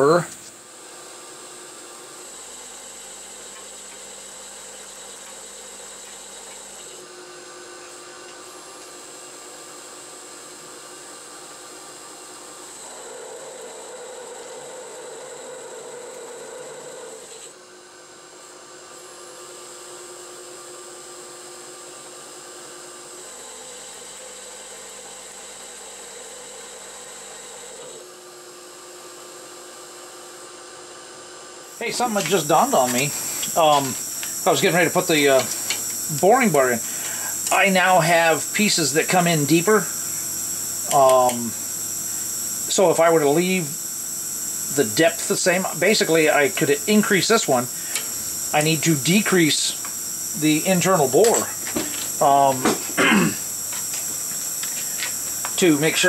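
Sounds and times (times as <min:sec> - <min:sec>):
metal lathe running: 0:31.7 - 0:56.0
motor whine changing pitch: 0:31.8 - 0:56.0.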